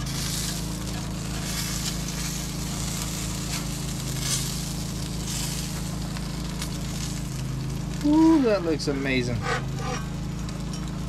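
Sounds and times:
meat sizzling on a grill: 0:00.0 - 0:11.0
spatulas scraping: 0:09.4 - 0:10.1.

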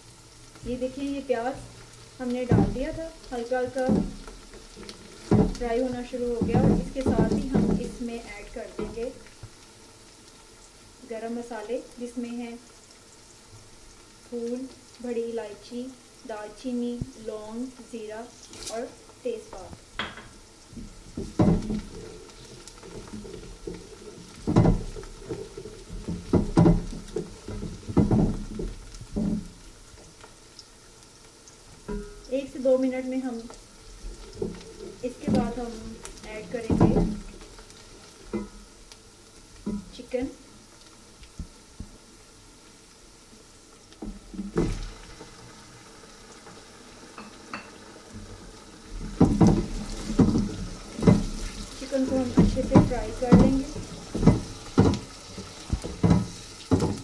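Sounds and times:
onions sizzling: 0:00.0 - 0:57.0
wooden spoon scraping a pot: 0:20.7 - 0:29.8, 0:49.0 - 0:57.0
spatula scraping pot: 0:49.0 - 0:57.0.

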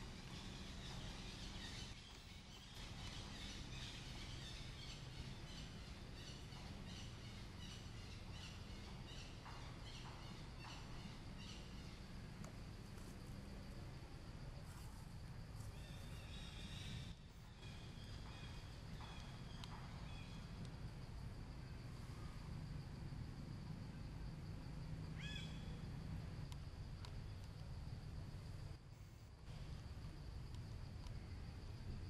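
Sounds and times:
distant bird calls: 0:00.0 - 0:13.9, 0:15.6 - 0:22.7, 0:24.9 - 0:27.7
insects buzzing: 0:00.0 - 0:32.0
steady low hum: 0:00.0 - 0:32.0.

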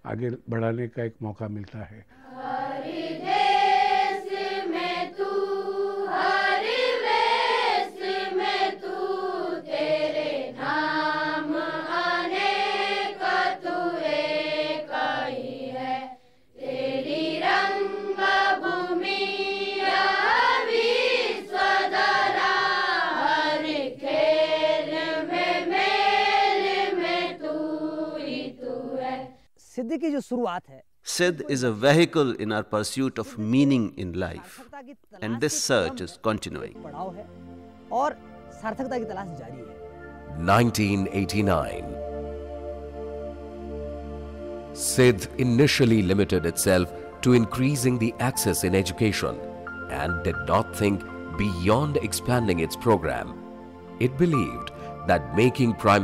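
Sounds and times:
voices singing prayer chant: 0:02.2 - 0:29.4, 0:39.5 - 0:42.1, 0:44.8 - 0:56.0.

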